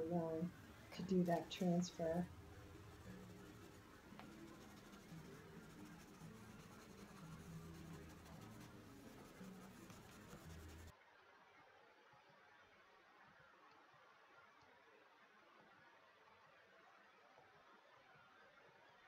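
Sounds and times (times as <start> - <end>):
stick rubbing on paper: 2.7 - 10.9.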